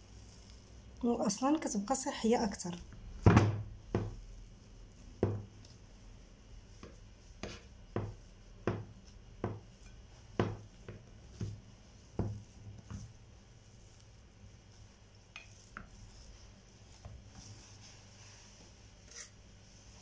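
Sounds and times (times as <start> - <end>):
potato masher knocking in bowl: 3.2 - 4.2, 6.8 - 11.6.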